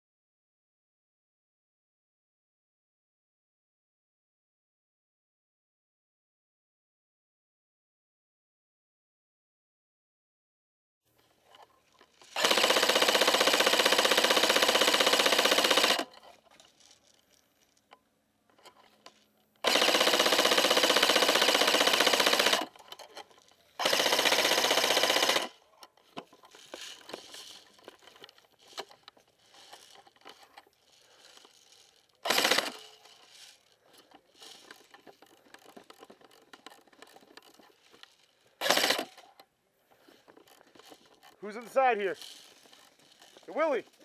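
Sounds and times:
rustling: 11.1 - 12.4, 16.1 - 19.6, 25.6 - 44.0
airsoft rifle bursts: 12.3 - 16.2, 19.6 - 23.2, 23.8 - 39.4, 40.0 - 44.0.

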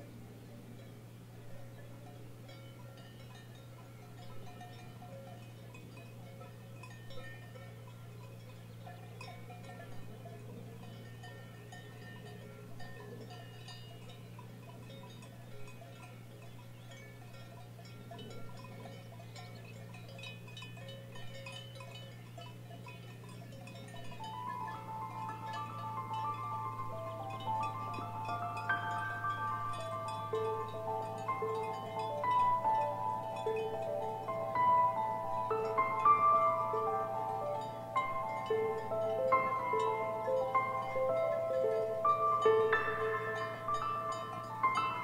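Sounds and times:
cowbells clanking: 0.0 - 45.0
chime-like music tones: 1.5 - 45.0
low hum: 23.8 - 45.0.

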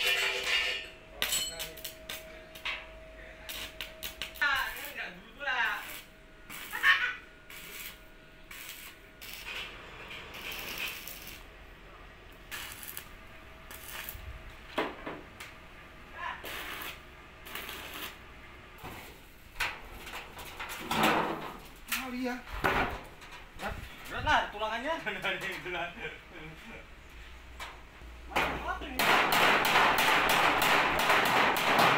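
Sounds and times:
hand tools clinking on metal: 0.0 - 2.8.

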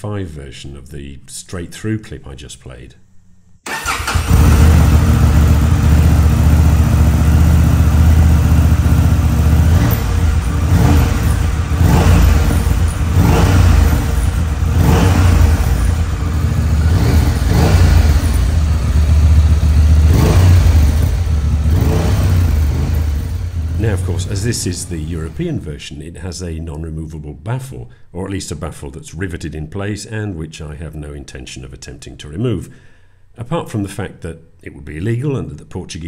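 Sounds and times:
motorcycle engine starting and idling: 3.6 - 25.4
motorcycle engine revving: 3.7 - 25.4.

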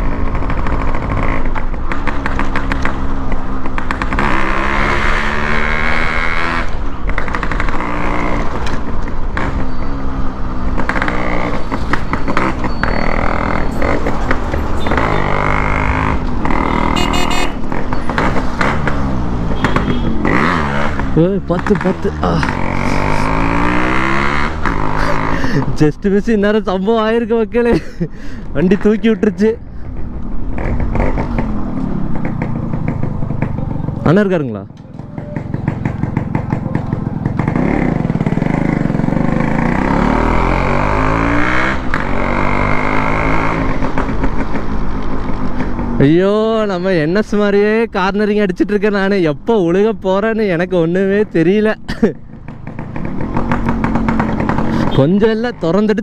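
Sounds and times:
motorcycle engine running: 10.7 - 25.7, 29.8 - 41.3, 52.2 - 55.8.

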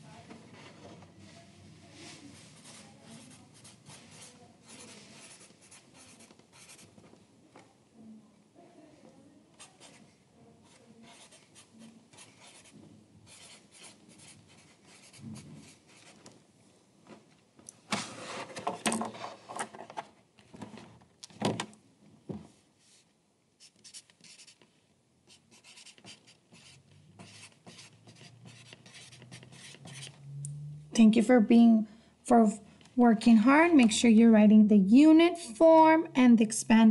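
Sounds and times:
pen writing on paper: 2.6 - 6.9, 10.7 - 16.1, 23.6 - 24.6, 25.3 - 30.1.

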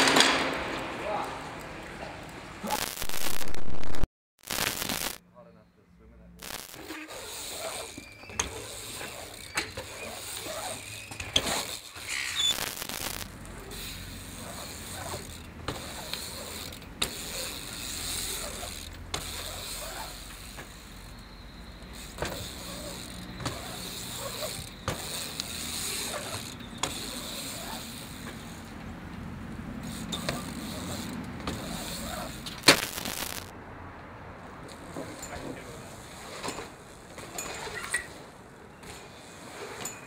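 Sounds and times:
bike knocks and clicks: 0.0 - 2.3, 14.4 - 29.2, 29.8 - 33.5
bike tyres rolling on concrete: 0.0 - 3.4, 4.5 - 5.2, 6.4 - 40.0.

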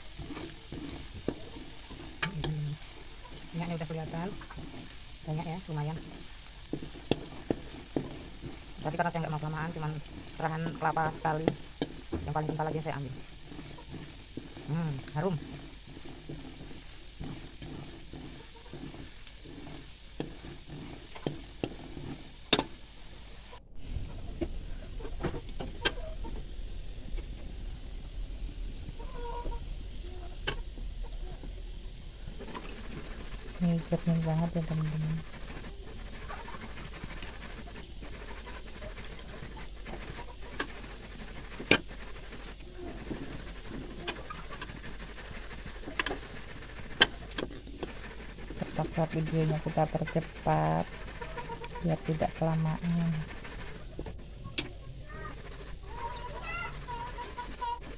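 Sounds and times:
metal utensils scraping a wok: 0.0 - 23.6
spatula scraping metal wok: 0.0 - 23.6, 29.0 - 54.4
oil bubbling and sizzling: 0.0 - 57.9.

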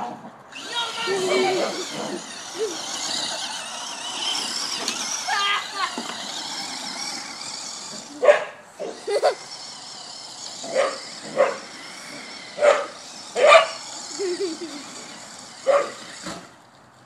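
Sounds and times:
toy car motor whine: 0.5 - 16.8
dog barking: 8.2 - 9.0, 10.7 - 11.7, 12.6 - 13.8, 15.7 - 16.0.

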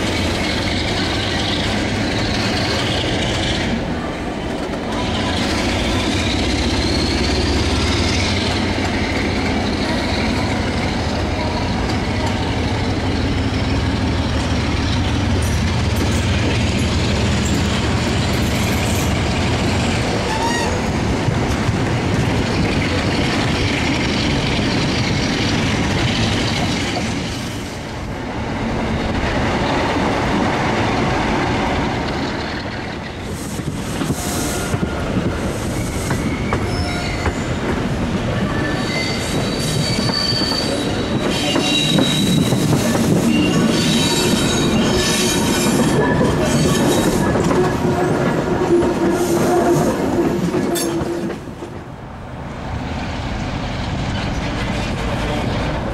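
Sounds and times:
train running: 0.0 - 55.9
train wheels squealing: 4.9 - 19.2, 20.2 - 20.9, 32.2 - 37.6, 38.3 - 51.4.

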